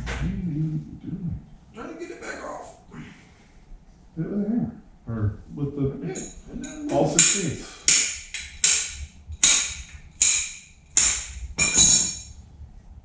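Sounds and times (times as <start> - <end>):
hammer striking metal: 6.2 - 12.4.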